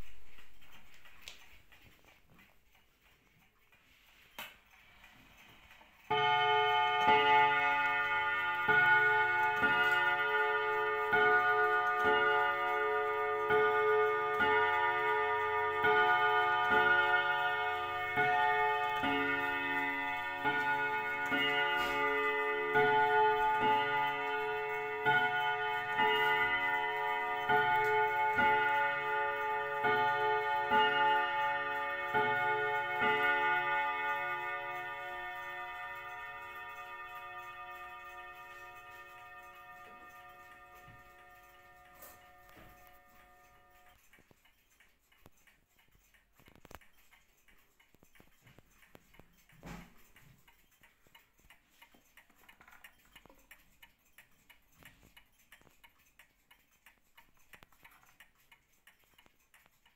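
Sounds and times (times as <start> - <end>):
clock striking chime notes: 6.1 - 44.0.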